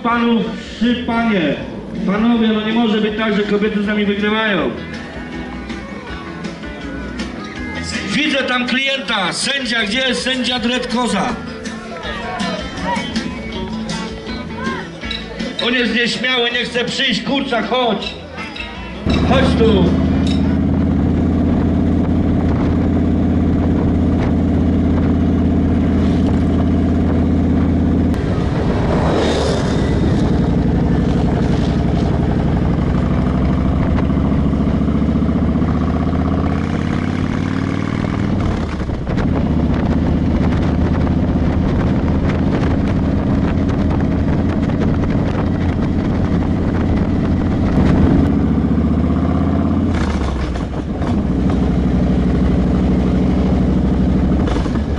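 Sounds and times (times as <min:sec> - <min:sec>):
motorcycle engine running: 0:19.0 - 0:54.9.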